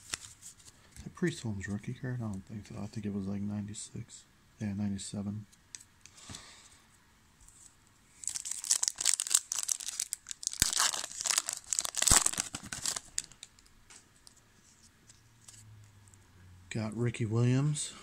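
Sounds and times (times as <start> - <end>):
wrapper tearing and crinkling: 8.2 - 13.7.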